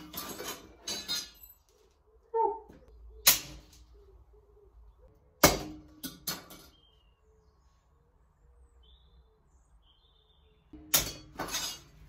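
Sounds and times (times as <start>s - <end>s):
hammer striking steel on anvil: 10.8s - 11.9s.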